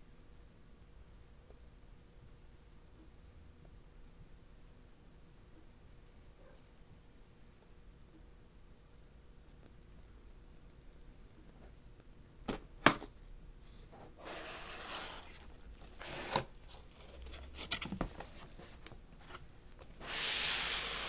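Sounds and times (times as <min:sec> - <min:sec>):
cardboard lid sliding off: 0:14.2 - 0:18.6, 0:20.0 - 0:21.0
paper flap rustling: 0:14.2 - 0:19.4.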